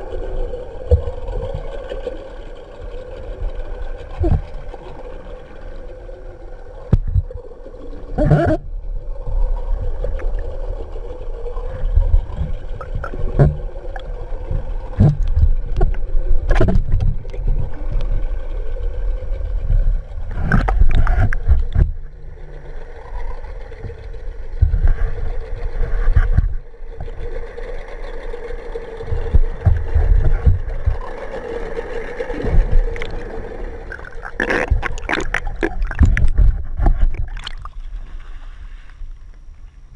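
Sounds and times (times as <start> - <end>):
boat engine drone: 0.0 - 39.9
underwater rumbling water noise: 0.0 - 39.9
knocks and clicks: 33.9 - 37.7.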